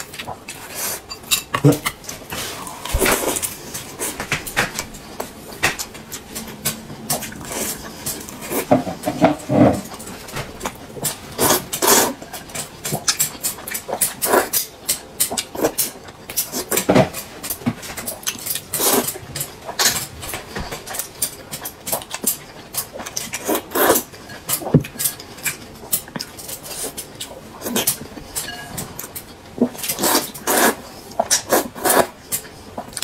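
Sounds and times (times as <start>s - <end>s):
slurping noodles: 11.4s - 12.2s, 23.4s - 24.1s, 29.8s - 32.2s.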